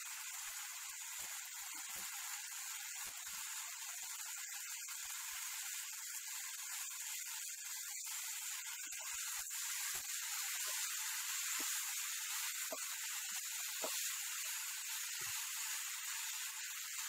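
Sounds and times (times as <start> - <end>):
vegetables sizzling in a pan: 0.0 - 17.0
spatula knocking on pan: 13.8 - 14.1.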